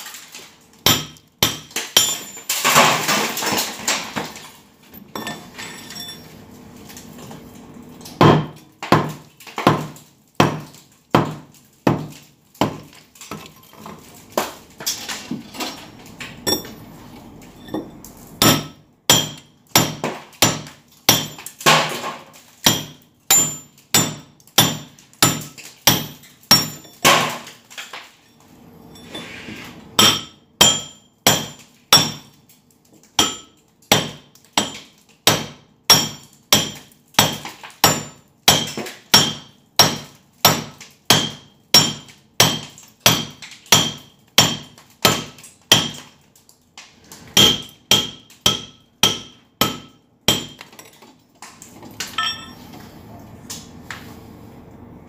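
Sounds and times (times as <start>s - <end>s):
hammer striking chisel on concrete: 0.9s - 2.3s, 17.7s - 21.4s, 33.2s - 46.0s, 47.4s - 50.7s.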